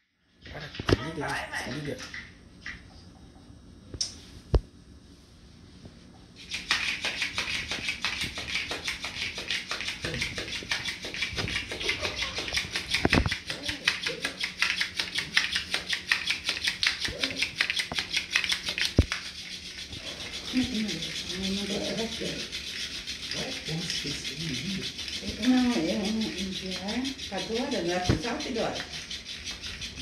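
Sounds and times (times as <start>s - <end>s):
toy tapping rattle on tile: 6.4s - 30.0s.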